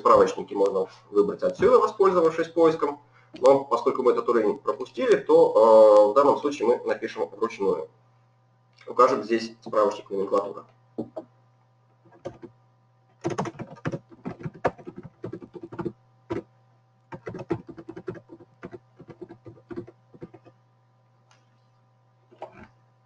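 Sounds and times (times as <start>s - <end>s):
faint steady hum: 0.0s - 23.0s
computer keyboard typing: 12.1s - 12.5s, 13.2s - 16.5s, 17.1s - 20.6s.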